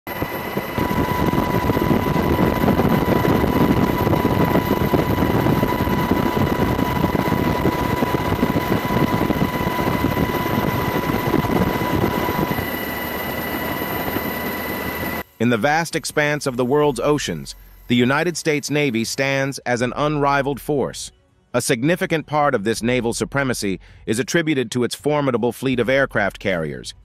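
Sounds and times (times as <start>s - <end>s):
high turbine whine: 0.0s - 20.9s
helicopter rotor and engine: 0.1s - 19.5s.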